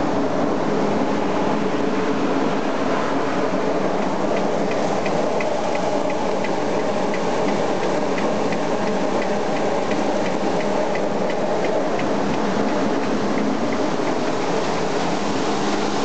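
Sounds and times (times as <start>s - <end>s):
light regular ticking: 4.0s - 15.8s.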